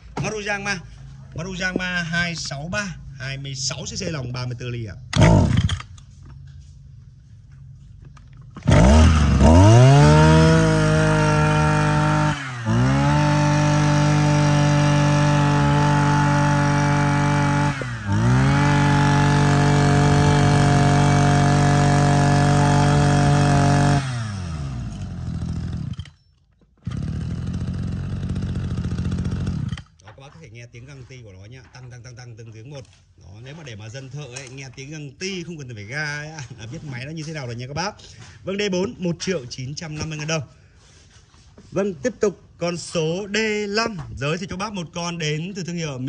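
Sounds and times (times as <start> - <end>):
brush cutter engine running: 5.1 - 6.0, 8.4 - 26.2, 26.8 - 30.0.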